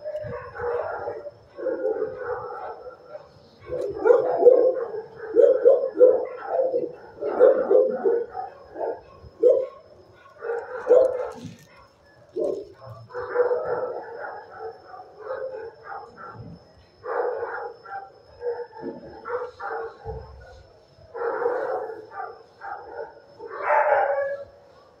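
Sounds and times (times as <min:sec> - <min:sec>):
dogs barking: 0:00.0 - 0:25.0.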